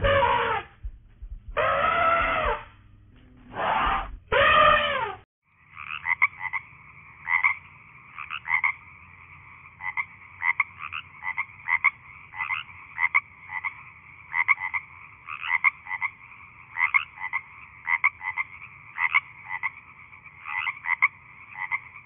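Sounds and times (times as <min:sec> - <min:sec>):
elephant trumpeting: 0:00.0 - 0:00.8, 0:01.5 - 0:05.2
frogs croaking and trilling: 0:04.3 - 0:22.0.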